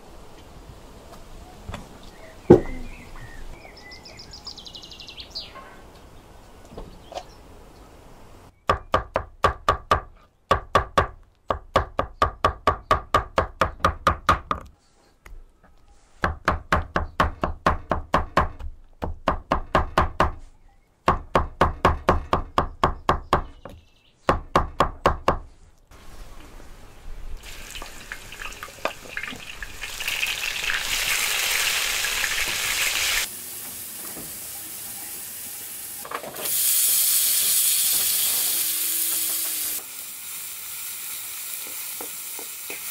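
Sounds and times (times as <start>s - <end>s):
tomatoes sizzling in a pan: 27.4s - 42.9s.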